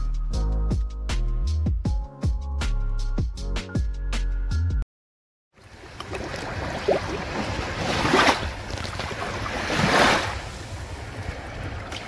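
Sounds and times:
sea waves washing ashore: 5.6 - 12.0.

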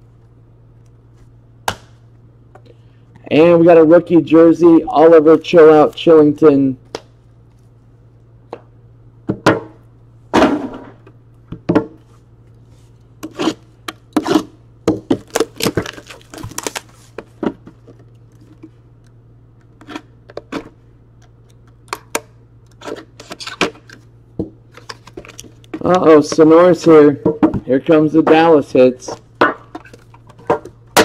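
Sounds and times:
packaging clicks and crinkles: 15.2 - 17.0.

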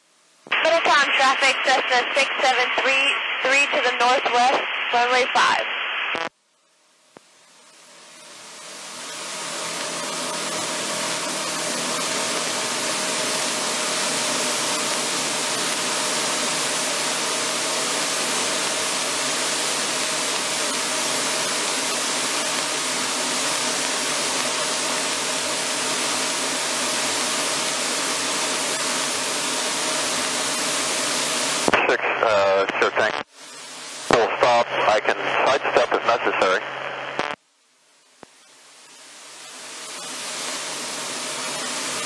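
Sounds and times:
aircraft engine and propeller: 8.2 - 31.6, 39.9 - 42.0.

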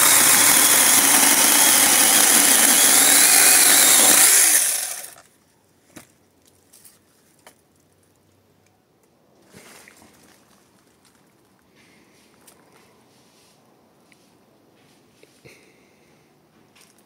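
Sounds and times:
mini chainsaw cutting branch: 0.0 - 5.2.

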